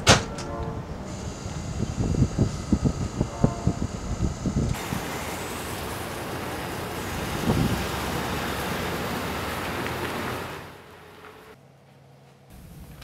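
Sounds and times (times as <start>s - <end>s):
car driving off: 4.6s - 11.6s.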